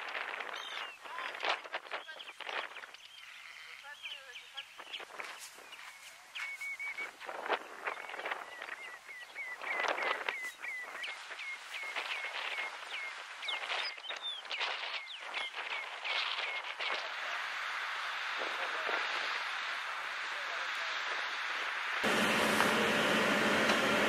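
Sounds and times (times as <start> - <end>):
harsh scratchy bird calls: 0.2 - 17.2
seabirds whistling: 2.0 - 7.2, 7.8 - 17.0.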